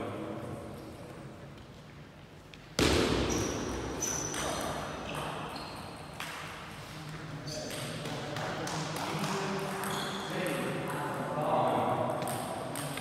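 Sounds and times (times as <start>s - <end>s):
shoes squeaking on floor: 3.2s - 6.2s, 7.4s - 8.0s, 9.8s - 10.4s.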